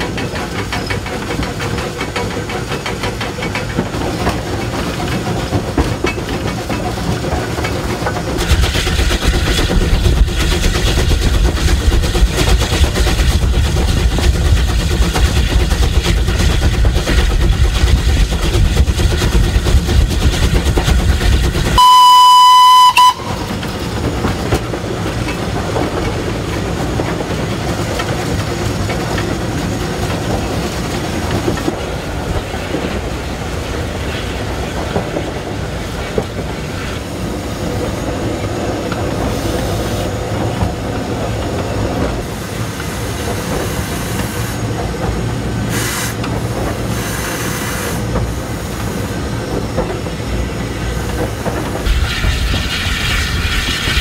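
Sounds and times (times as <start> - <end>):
train wheels clattering on rails: 0.0 - 54.0
steam locomotive whistle blast: 21.8 - 23.5.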